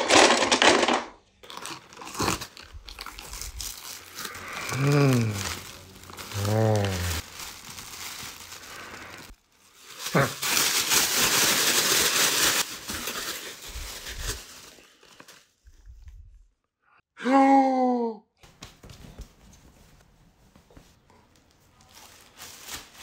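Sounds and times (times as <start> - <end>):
plastic and paper crinkling: 0.0 - 15.9, 21.3 - 23.0
short vocal sound: 4.3 - 5.6, 6.2 - 7.2.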